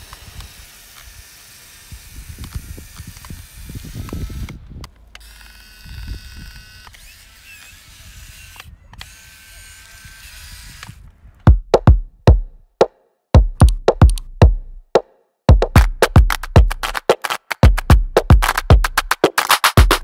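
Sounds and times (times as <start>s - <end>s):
hiss: 0.0s - 4.5s
small electric motor whining: 0.0s - 11.4s
electronic music with drum beat: 11.5s - 12.6s, 13.4s - 20.0s.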